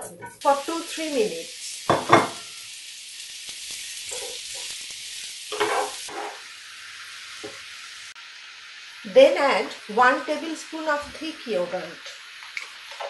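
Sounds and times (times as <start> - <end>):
mushrooms sizzling in oil: 0.0 - 13.0
wooden spatula scraping pan: 5.5 - 6.4.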